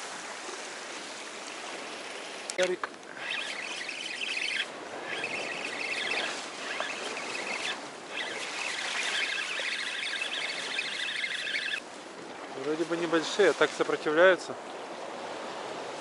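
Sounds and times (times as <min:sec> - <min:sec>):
surf washing: 0:00.0 - 0:16.0
spinning reel whirring: 0:02.6 - 0:11.8.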